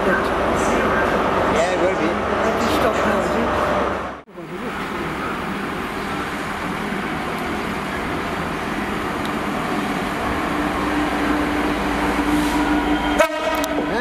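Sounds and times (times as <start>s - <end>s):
diesel locomotive rumbling: 0.0s - 14.0s.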